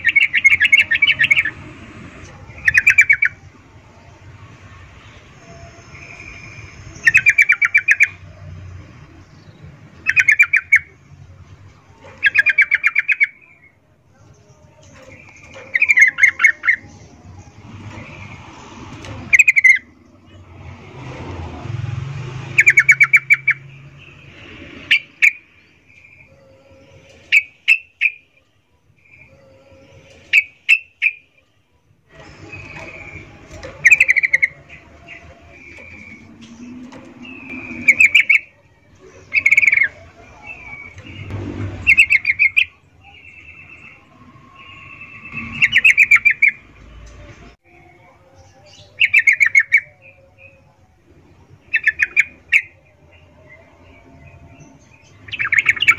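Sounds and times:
bird chips: 32.2 - 44.0.

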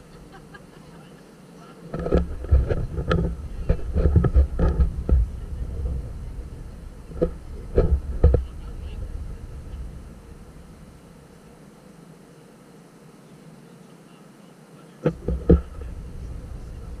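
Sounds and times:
wind buffeting microphone: 1.8 - 11.6, 15.1 - 17.0.

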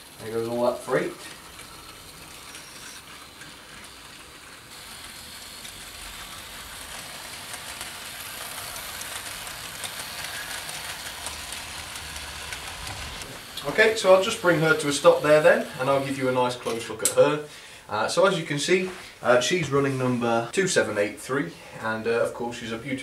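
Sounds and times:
model train wheels clicking: 0.0 - 17.4.

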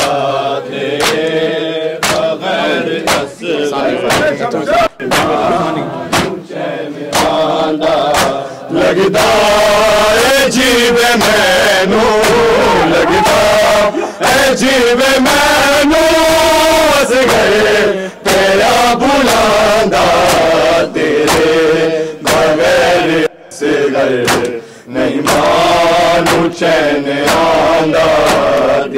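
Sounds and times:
men chanting in unison: 0.0 - 28.9
hands slapping chest: 1.0 - 2.4, 3.0 - 3.3, 5.1 - 5.4, 6.1 - 6.4, 7.1 - 7.4, 8.0 - 8.4, 20.2 - 20.6, 21.2 - 21.6, 22.2 - 22.6, 24.2 - 24.6, 25.2 - 25.5, 26.2 - 26.5, 27.2 - 27.5.

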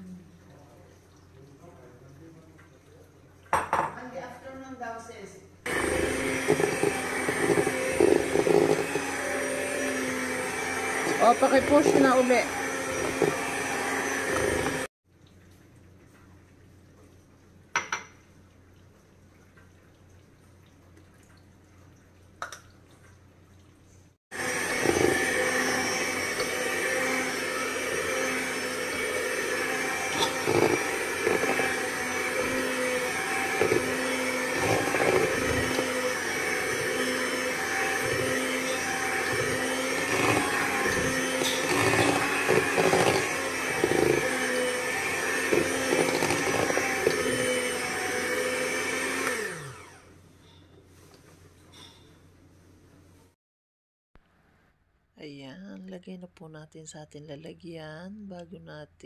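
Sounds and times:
electric hand mixer running: 5.7 - 14.9, 24.3 - 50.2.

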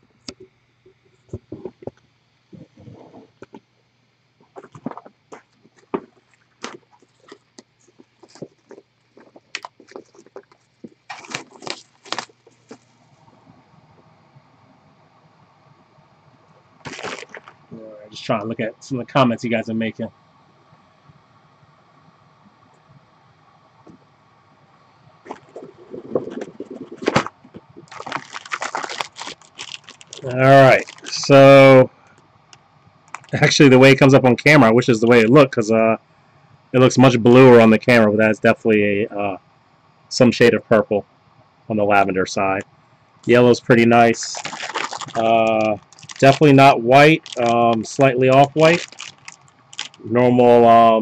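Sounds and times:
plastic packaging rustling: 4.5 - 12.9, 16.8 - 17.6, 25.3 - 31.7, 33.1 - 33.5, 44.2 - 50.1.

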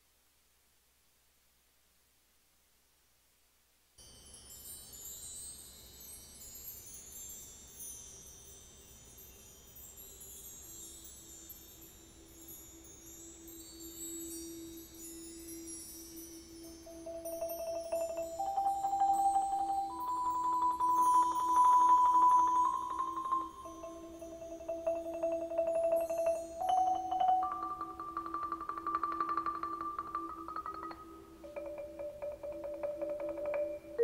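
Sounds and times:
high metal chimes tinkling: 4.0 - 34.0
mallet percussion note: 17.0 - 34.0.

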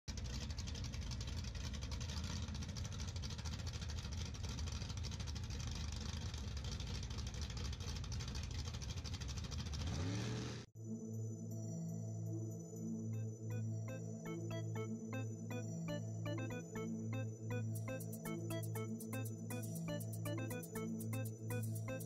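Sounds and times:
pickup truck engines idling: 0.1 - 9.8
music: 10.8 - 22.0.

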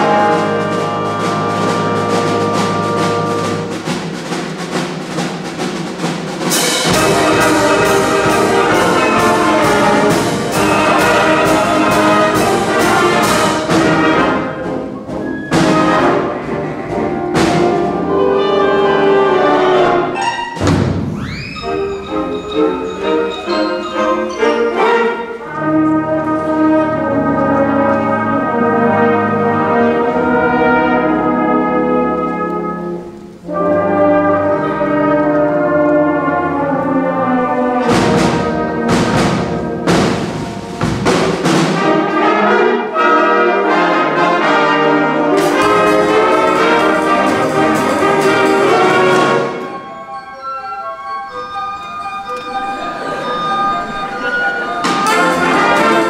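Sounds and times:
concert band playing: 0.0 - 56.0
drum hits: 1.2 - 14.8, 15.4 - 18.1, 20.6 - 21.5, 37.8 - 42.1, 45.4 - 49.6, 54.8 - 56.0.

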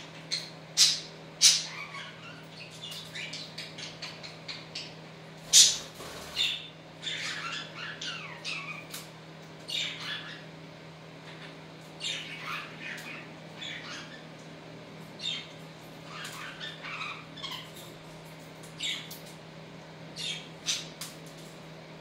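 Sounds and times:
bird squawks: 0.1 - 9.0, 9.7 - 10.6, 11.2 - 14.3, 15.2 - 17.8, 18.8 - 19.2, 20.1 - 21.0
budgerigars chirping: 0.3 - 8.9, 9.7 - 10.5, 11.3 - 14.3, 15.2 - 17.7, 20.2 - 20.9.

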